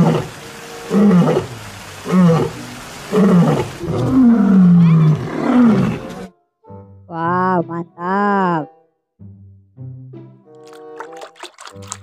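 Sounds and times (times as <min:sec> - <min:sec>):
lion roaring: 0:00.0 - 0:06.3.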